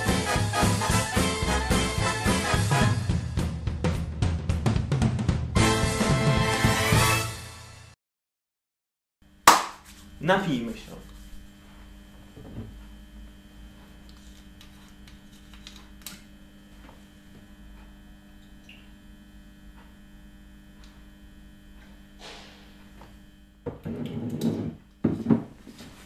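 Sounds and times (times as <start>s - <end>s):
low electrical hum: 9.3s - 26.0s.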